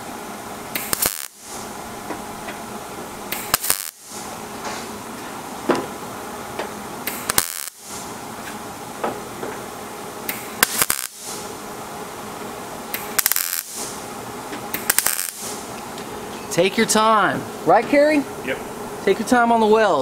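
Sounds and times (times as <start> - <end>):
welding arc crackle: 0.7 - 2.6, 3.2 - 5.1, 7.0 - 8.5, 10.2 - 15.8.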